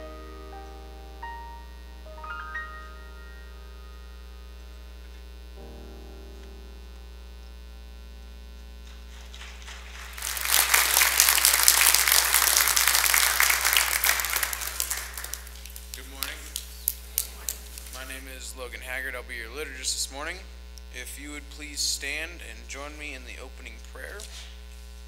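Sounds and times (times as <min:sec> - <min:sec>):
keyboard chord: 0:00.0 - 0:08.8
electrical hum: 0:00.0 - 0:25.0
congregation applauding: 0:08.8 - 0:18.1.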